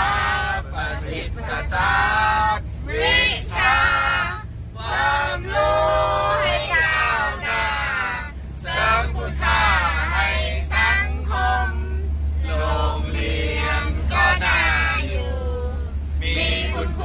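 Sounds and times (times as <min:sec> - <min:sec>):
steady low rumble: 0:00.0 - 0:17.0
voices singing: 0:00.0 - 0:17.0.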